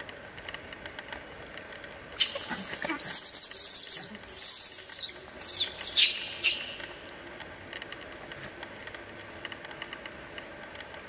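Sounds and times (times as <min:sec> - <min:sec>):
thin steady high whine: 0:00.0 - 0:11.0
shrill animal squeals: 0:02.2 - 0:06.9.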